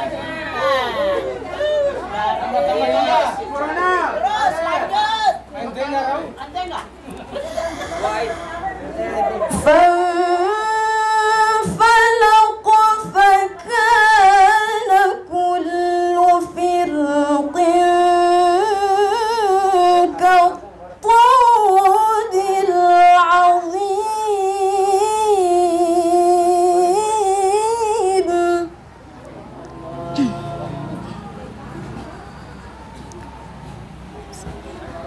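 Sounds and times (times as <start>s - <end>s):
woman chanting into microphone: 9.5s - 28.8s.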